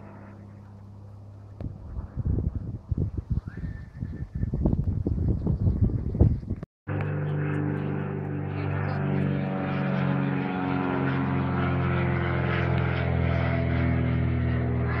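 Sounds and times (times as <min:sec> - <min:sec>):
propeller plane engine droning: 0:00.0 - 0:15.0
wind buffeting microphone: 0:01.5 - 0:06.7.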